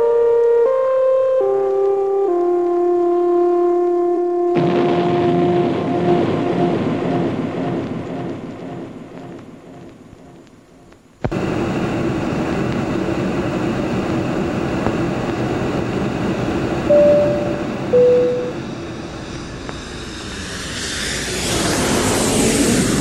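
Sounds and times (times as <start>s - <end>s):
logo sting: 16.9s - 18.6s
two-tone chime: 16.9s - 18.6s.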